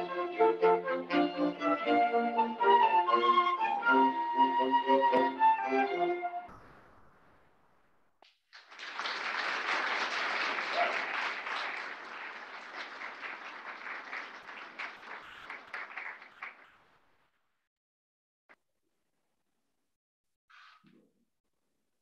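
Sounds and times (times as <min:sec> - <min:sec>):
audience applauding: 0:08.2 - 0:17.1.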